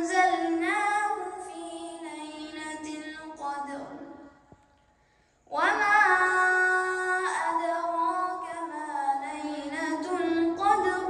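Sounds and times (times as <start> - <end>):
person chanting recitation: 5.5 - 11.0.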